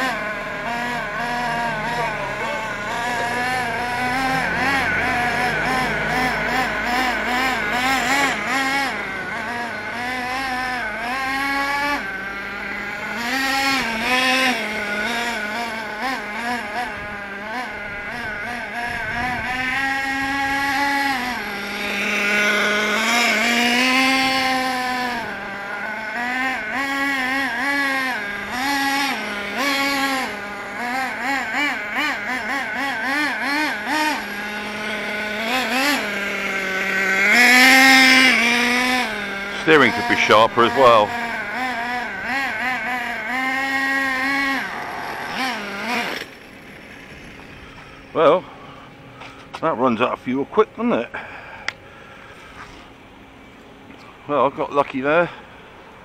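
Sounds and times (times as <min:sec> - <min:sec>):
model car engine revving: 0:00.0 - 0:56.0.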